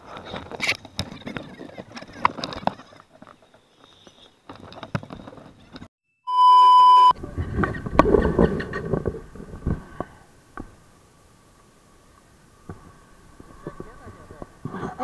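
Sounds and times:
electronic test-tone beep: 6.3 - 7.1.

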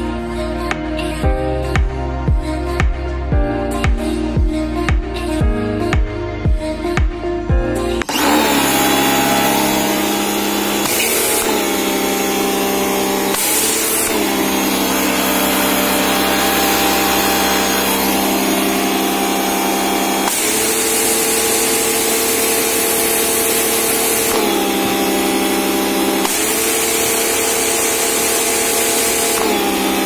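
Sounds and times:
pressure washer motor humming: 8.0 - 30.0
water spray hissing: 9.0 - 30.0.

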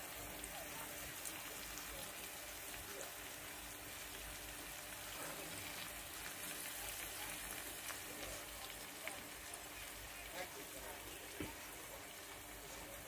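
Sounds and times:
food sizzling in oil: 0.0 - 13.0
faint crackles: 0.1 - 13.0.

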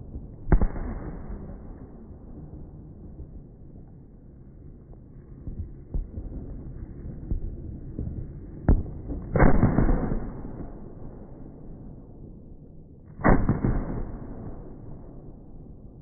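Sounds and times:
firework crack: 0.0 - 3.2, 8.0 - 10.8, 13.2 - 14.9
low rumble: 0.0 - 16.0.

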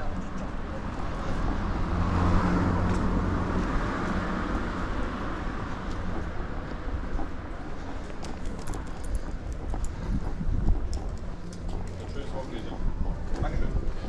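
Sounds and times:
car passing by: 0.2 - 7.0.

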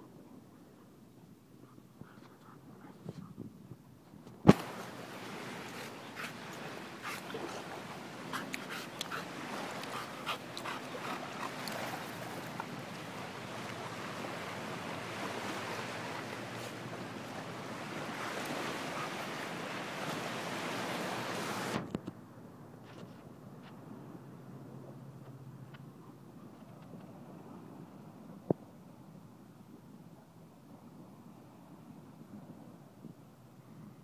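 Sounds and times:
wind: 0.0 - 34.0
surf rushing: 4.5 - 21.8.

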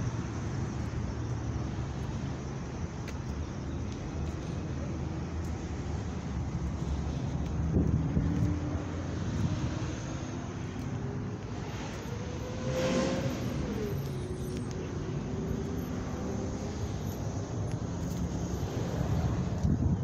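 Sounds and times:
traffic rumble: 0.0 - 20.0
vehicle passing by: 6.6 - 19.7.

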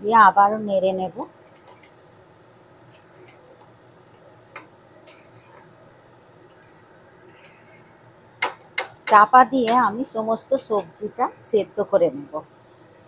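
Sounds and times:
metal spatula scraping a pan: 5.1 - 5.7, 6.5 - 8.0.

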